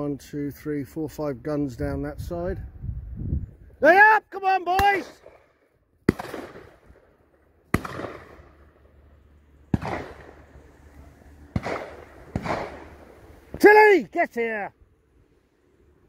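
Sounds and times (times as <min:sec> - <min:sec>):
shotgun shots echoing: 0:04.8 - 0:07.1, 0:07.7 - 0:08.7, 0:09.7 - 0:10.6, 0:11.5 - 0:13.1.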